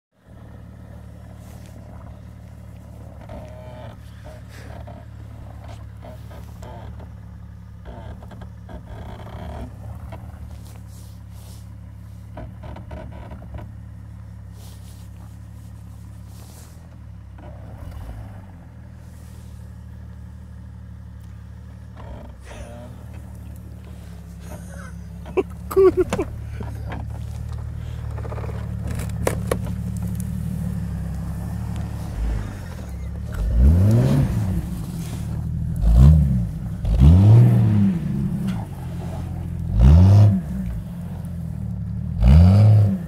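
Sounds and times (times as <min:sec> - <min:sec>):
car engine running: 0:00.1 - 0:43.0
rustling and crunching: 0:00.9 - 0:06.8, 0:09.7 - 0:12.6, 0:13.6 - 0:17.4, 0:21.3 - 0:41.8.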